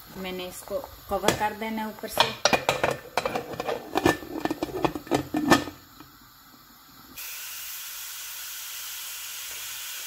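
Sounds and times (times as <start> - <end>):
steam hissing from pressure cooker: 0.0 - 10.0
metal lid clinking: 2.1 - 5.8.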